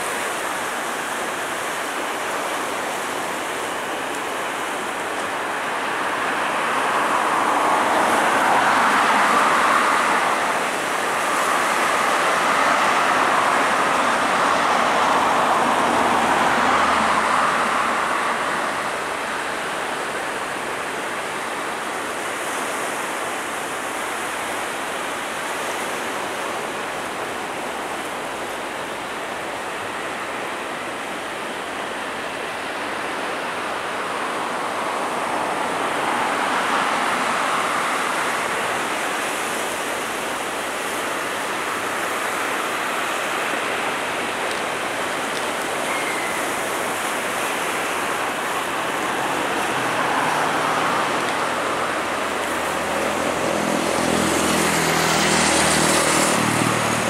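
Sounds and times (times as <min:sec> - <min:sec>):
distant jet engines running: 0:25.5 - 0:57.0.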